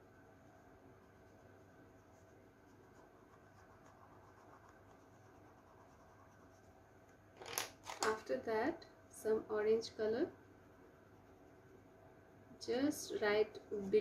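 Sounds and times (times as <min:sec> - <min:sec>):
low room hum: 0:00.0 - 0:14.0
crayon scratching on paper: 0:01.1 - 0:06.8.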